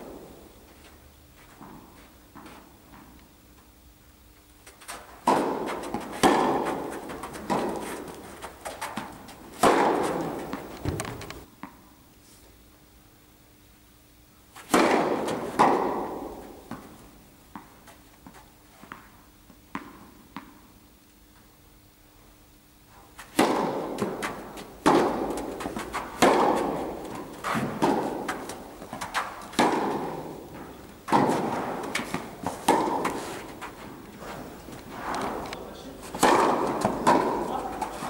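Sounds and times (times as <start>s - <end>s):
footsteps: 4.6s - 11.5s, 24.2s - 38.0s
tennis ball bouncing: 4.6s - 11.8s, 14.6s - 20.7s, 23.2s - 38.0s
tennis ball struck by rackets: 4.9s - 11.8s, 14.6s - 17.8s, 23.2s - 38.0s.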